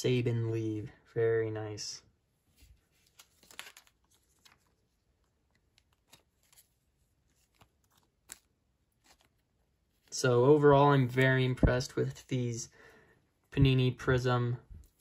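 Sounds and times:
trading cards rustling on table: 2.5s - 12.6s, 14.8s - 15.0s.

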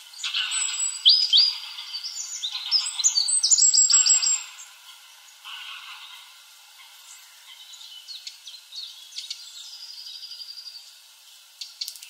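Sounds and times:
high-pitched bird song: 0.2s - 4.7s.

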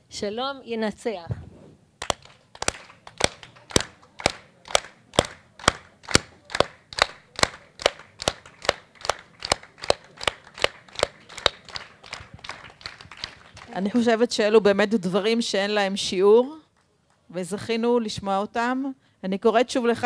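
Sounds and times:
hands clapping in rhythm: 2.0s - 14.0s.

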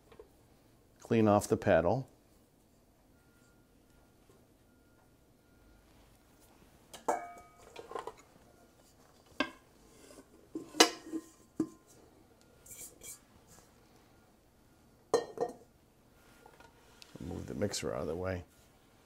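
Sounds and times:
kitchen utensils clinking and knocking: 10.5s - 11.8s.

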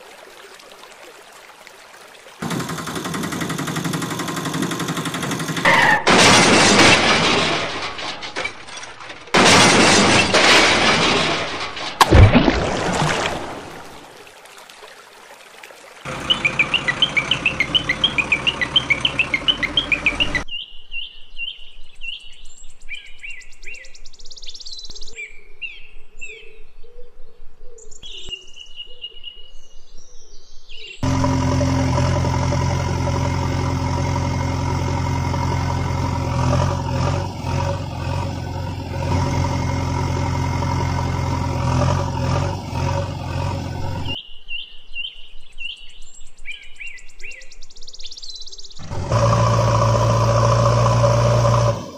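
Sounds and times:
vehicle engine running: 2.4s - 8.4s, 16.1s - 20.4s, 31.0s - 44.2s, 48.8s - 51.9s
birds chirping: 16.1s - 23.7s.

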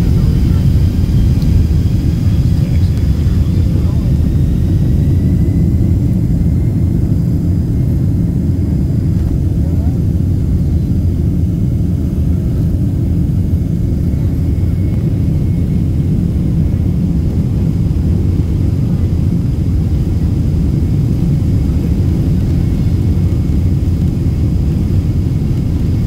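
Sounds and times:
aircraft cabin rumble: 0.0s - 26.0s
jet engine whine: 0.0s - 26.0s.

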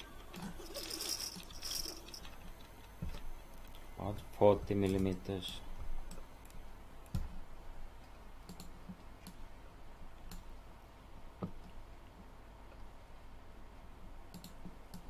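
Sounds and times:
low room noise: 0.0s - 15.0s
computer mouse clicks: 8.4s - 9.4s, 10.2s - 10.5s, 14.3s - 15.0s.

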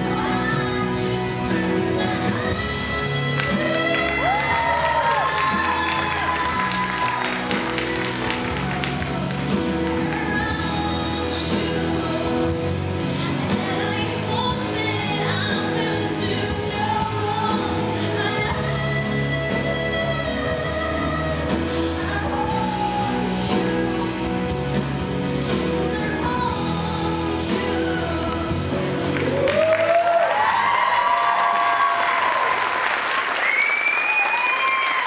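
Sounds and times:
song over sound system: 0.0s - 35.0s
audience clapping and whooping: 3.2s - 10.7s, 29.0s - 35.0s.

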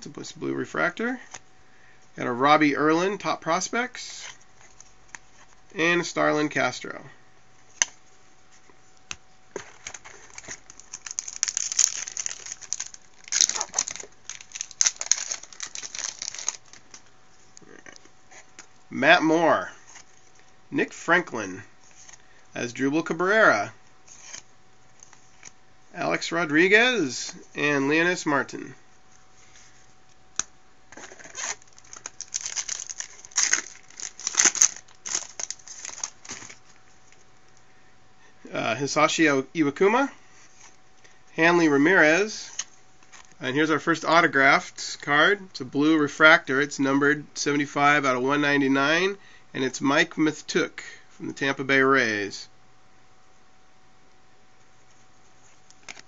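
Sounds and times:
foil wrapper crinkling and tearing: 9.8s - 17.0s, 31.0s - 36.8s.

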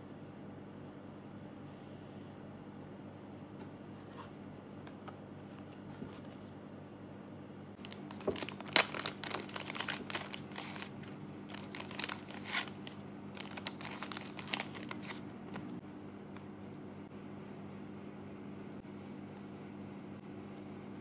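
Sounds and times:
plastic sleeves crinkling: 7.8s - 15.8s.

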